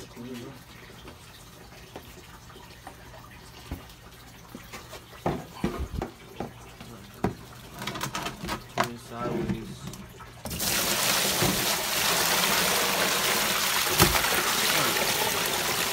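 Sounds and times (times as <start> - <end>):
water sloshing in a cooler: 0.0 - 15.9.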